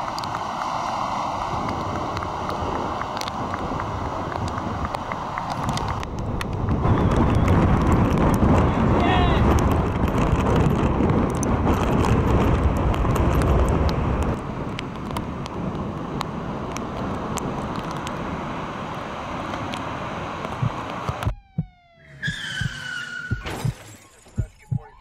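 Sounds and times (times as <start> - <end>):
ocean surf: 0.0 - 6.7, 14.3 - 21.2
wind on microphone: 0.0 - 18.6
electronic sliding tones: 21.2 - 23.8.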